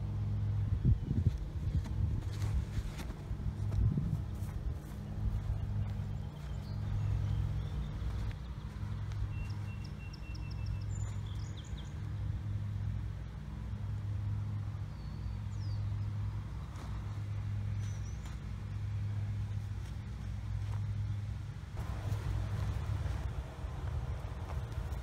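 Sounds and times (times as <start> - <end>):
small birds chirping: 4.5 - 12.8, 14.7 - 19.6.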